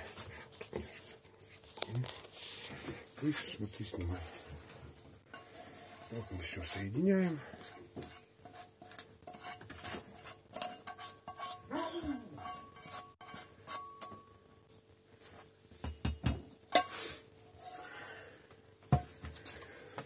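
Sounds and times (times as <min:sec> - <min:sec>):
spatula scraping a frying pan: 0:05.2 - 0:14.5, 0:16.8 - 0:18.0.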